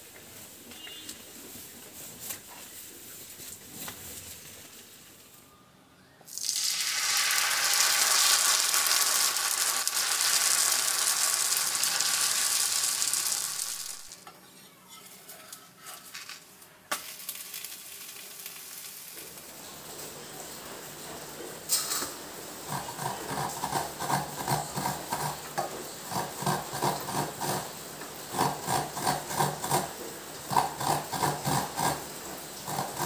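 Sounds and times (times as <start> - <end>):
batter sizzling on hot griddle: 6.3 - 14.2, 15.8 - 33.0.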